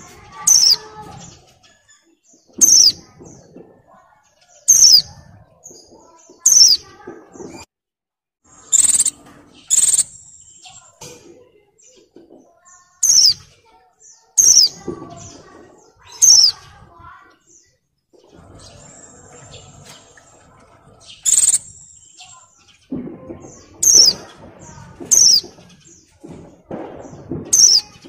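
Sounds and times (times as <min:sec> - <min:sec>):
bird giving sharp high calls: 0:08.6 - 0:10.4, 0:21.2 - 0:21.9.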